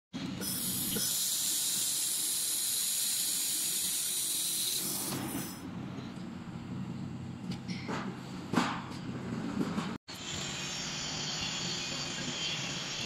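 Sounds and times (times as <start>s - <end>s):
laser welder hissing: 0.4s - 5.6s.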